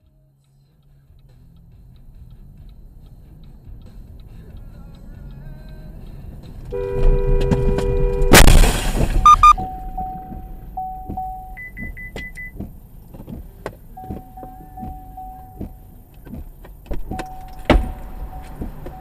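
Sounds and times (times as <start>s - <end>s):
car warning beeps: 2.0s - 19.0s
car warning chime: 6.6s - 19.0s.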